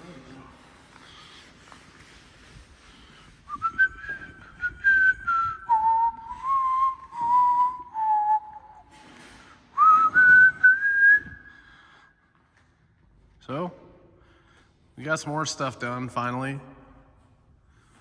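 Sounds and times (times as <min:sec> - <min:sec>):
person whistling a tune: 0:03.5 - 0:09.0, 0:09.8 - 0:11.8.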